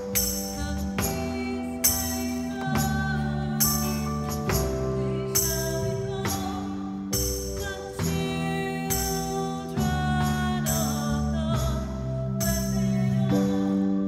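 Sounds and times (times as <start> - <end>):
drum and cymbal hits: 0.0 - 13.5
bass: 0.0 - 14.0
keyboard chords: 0.0 - 14.0.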